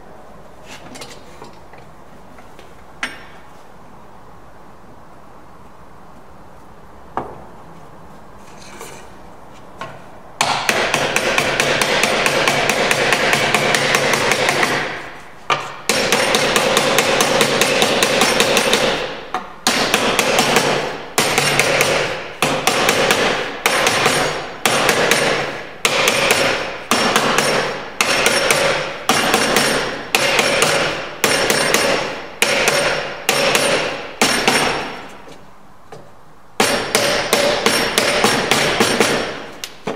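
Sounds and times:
wooden mallet striking wood: 10.4 - 35.1, 36.6 - 39.9.

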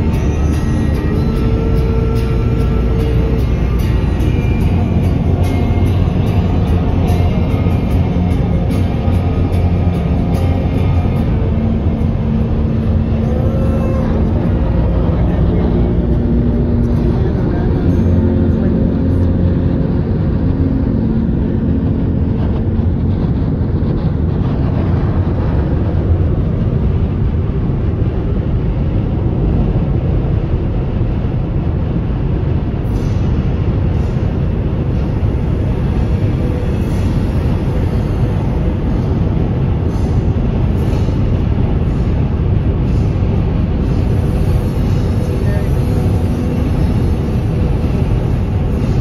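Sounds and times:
wind and road noise inside car: 0.0 - 49.0.

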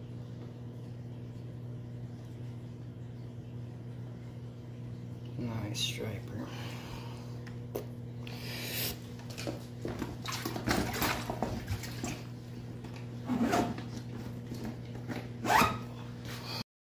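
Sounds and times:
zipper being pulled: 15.4 - 15.8.

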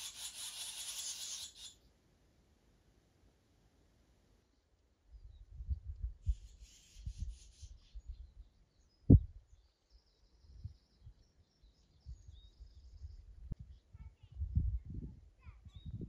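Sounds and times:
faint bird chirping: 0.0 - 1.9, 4.4 - 14.4, 15.4 - 16.0
wind buffeting microphone: 5.2 - 8.4, 9.1 - 9.4, 12.0 - 16.0.

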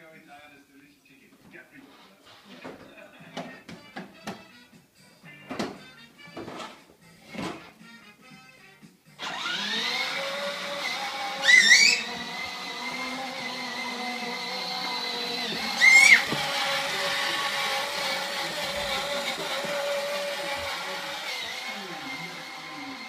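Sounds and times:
toy motorbike motor whining: 9.2 - 23.0.

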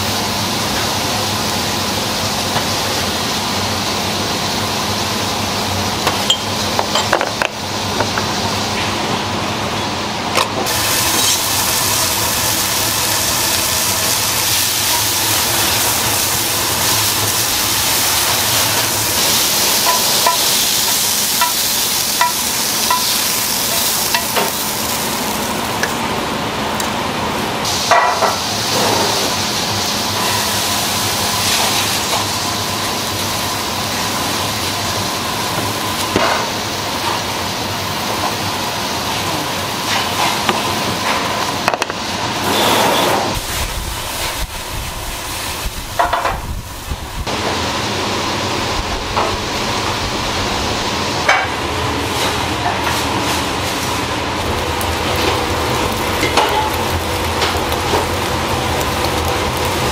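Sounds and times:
food sizzling: 10.6 - 59.9
utensils clinking: 18.7 - 24.6.

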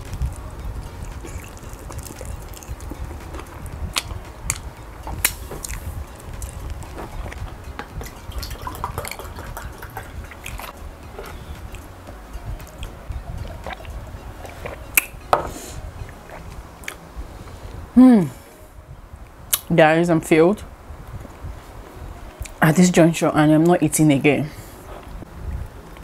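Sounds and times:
wet chewing: 1.1 - 7.5, 8.4 - 11.9
drink pouring into a glass: 8.3 - 10.1.

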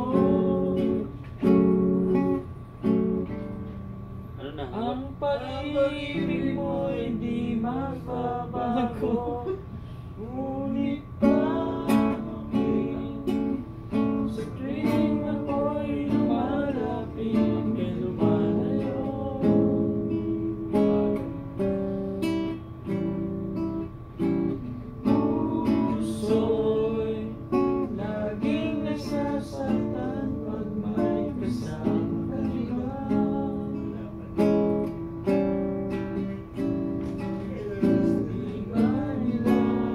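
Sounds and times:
person singing: 0.0 - 1.1, 4.8 - 20.6, 25.0 - 34.3, 37.2 - 39.9
acoustic guitar: 0.0 - 39.9.

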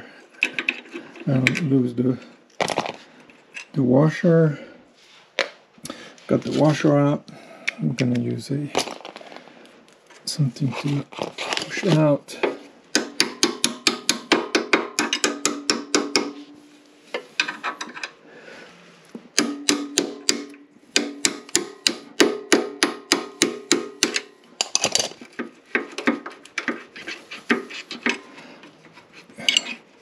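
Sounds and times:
hammer tapping metal punch: 13.0 - 16.6, 19.4 - 24.8.

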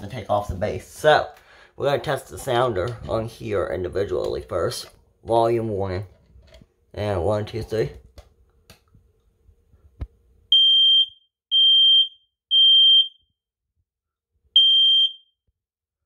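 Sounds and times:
smoke detector beeps: 10.5 - 13.2, 14.6 - 15.3.

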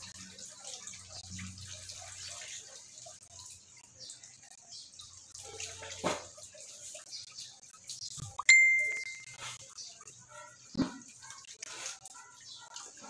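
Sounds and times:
water splashing into plastic basin: 5.0 - 8.0, 10.6 - 13.0.

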